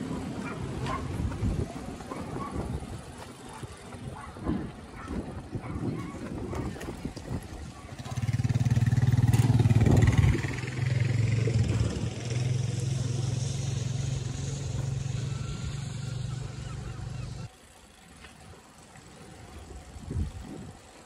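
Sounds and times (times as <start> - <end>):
light aircraft engine taking off: 8.1 - 18.0.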